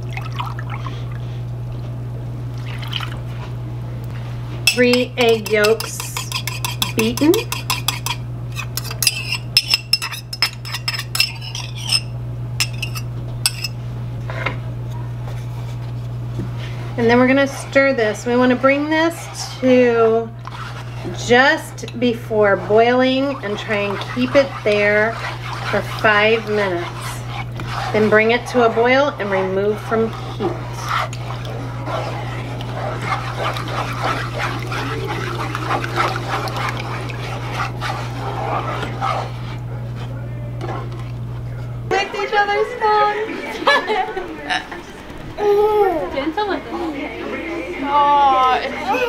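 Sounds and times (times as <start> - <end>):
steady low hum: 0.0 - 49.0
metal utensil scraping ceramic cup: 4.7 - 13.8, 20.4 - 39.4.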